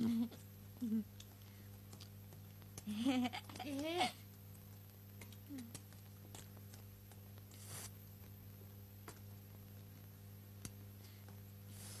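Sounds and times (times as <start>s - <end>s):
soft rustle: 7.4s - 8.3s, 10.9s - 12.0s.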